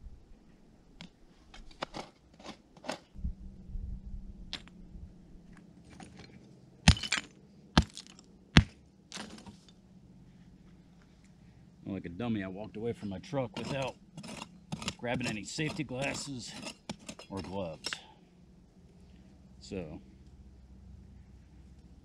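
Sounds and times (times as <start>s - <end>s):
loose stones scraping and clicking: 1.0s - 3.1s, 5.5s - 9.8s, 13.5s - 18.1s
hammer striking rock: 6.9s - 9.4s, 13.6s - 18.1s.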